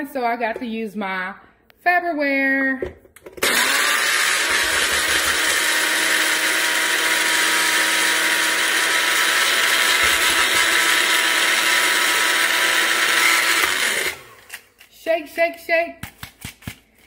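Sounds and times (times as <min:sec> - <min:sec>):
blender grinding snacks: 0:03.4 - 0:14.8.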